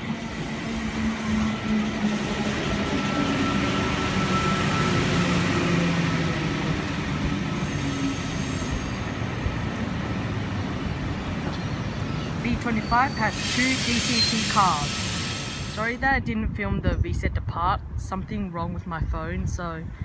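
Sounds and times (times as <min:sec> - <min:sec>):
electric train rumbling: 0:00.0 - 0:19.1
brief high squeal: 0:11.8 - 0:14.6.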